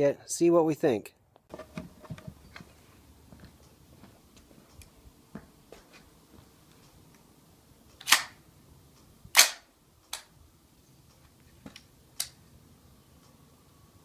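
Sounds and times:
loud gunshot cracks: 9.3s - 9.6s.

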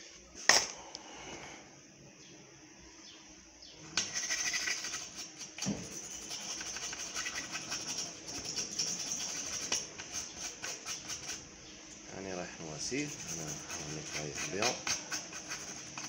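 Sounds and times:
brush scrubbing circuit board: 4.0s - 11.5s, 12.8s - 16.0s.

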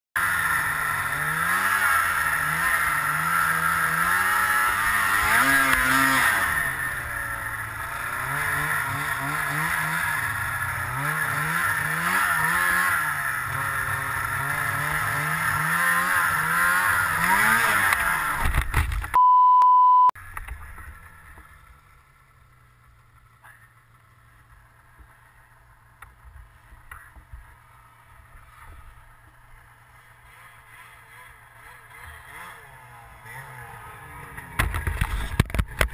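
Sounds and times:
snowmobile engine revving: 0.2s - 19.0s, 20.6s - 35.9s
steady beep: 19.2s - 20.2s.

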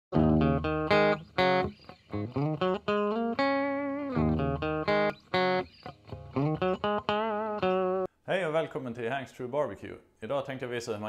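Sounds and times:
plucked guitar melody: 0.1s - 8.1s.

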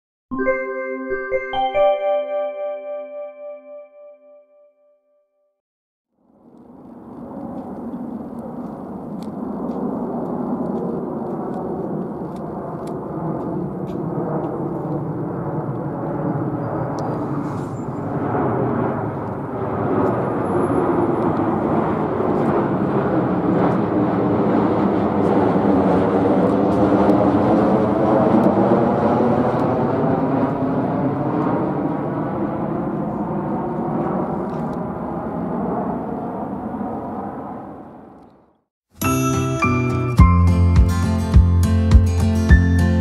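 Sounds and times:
jet airliner passing overhead: 6.2s - 38.6s.

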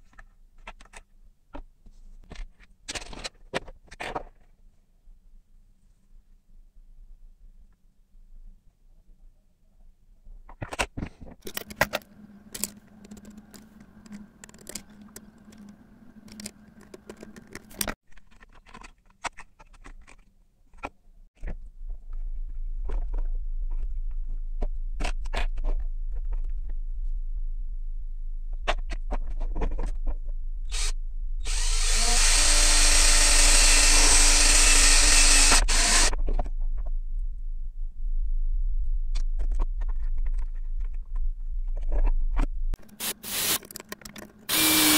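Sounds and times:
plastic parts clicking: 10.5s - 21.0s, 42.8s - 44.9s
low hum: 21.6s - 43.4s
electric drill boring plastic: 30.7s - 36.2s, 43.0s - 43.7s, 44.5s - 44.9s.

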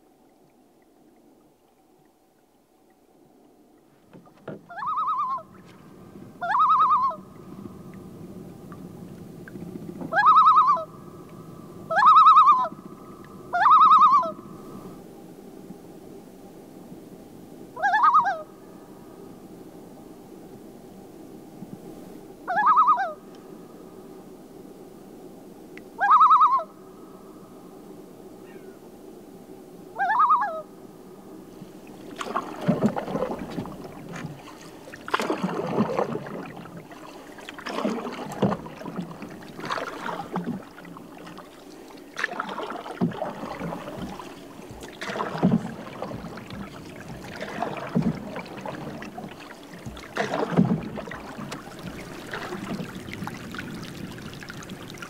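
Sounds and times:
canoe paddle stroking water: 3.7s - 15.0s, 31.6s - 55.0s
short bird calls: 28.4s - 28.8s.

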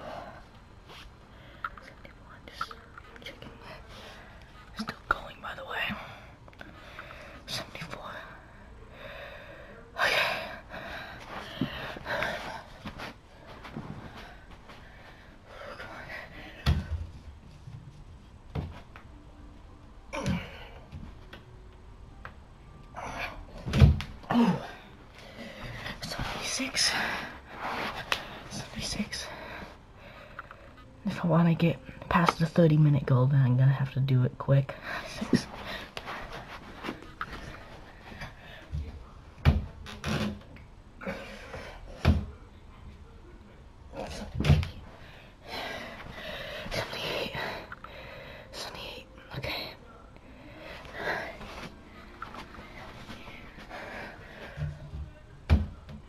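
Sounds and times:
person breathing: 5.9s - 16.7s, 44.9s - 48.6s.

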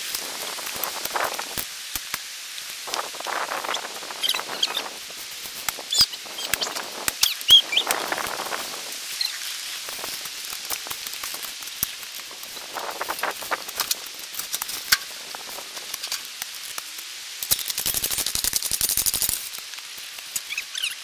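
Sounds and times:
bird chirps: 4.2s - 4.9s, 5.9s - 7.9s, 20.4s - 21.0s.

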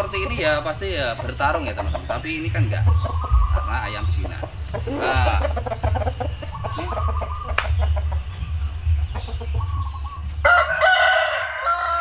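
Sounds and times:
low rumble: 2.4s - 10.5s
rooster crowing: 10.4s - 12.0s.

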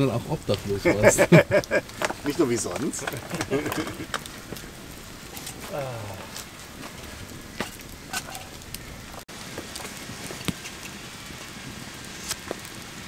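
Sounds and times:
campfire crackling and popping: 0.0s - 13.0s.

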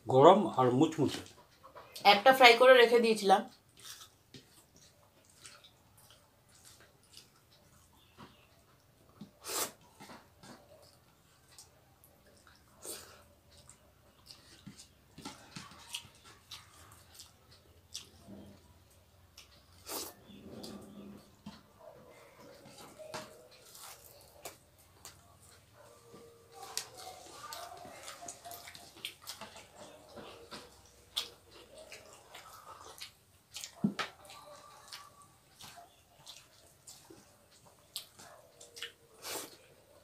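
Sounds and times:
chewing and lip smacks: 3.5s - 20.8s, 21.4s - 40.0s
lip smacks: 26.7s - 39.6s.

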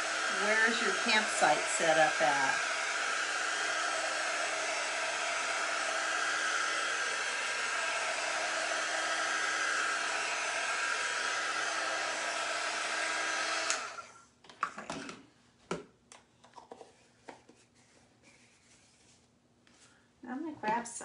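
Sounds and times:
heat gun blowing: 0.0s - 14.1s.

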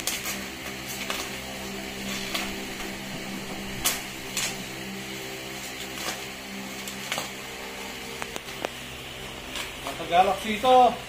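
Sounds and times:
scissors cutting packing tape: 0.0s - 1.4s, 3.5s - 4.6s
steady low hum: 0.0s - 11.0s.

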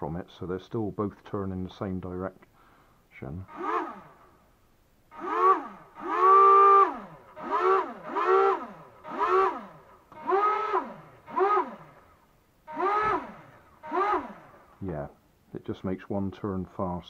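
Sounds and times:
small propeller motors whining: 3.5s - 4.3s, 5.1s - 14.8s.

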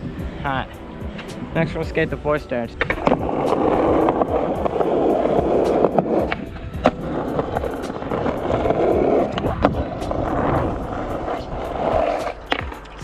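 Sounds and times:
skateboard wheels rolling on concrete: 0.0s - 13.0s
skateboard clacking on ground: 2.6s - 13.0s
skateboard clicking over pavement seams: 2.8s - 13.0s.

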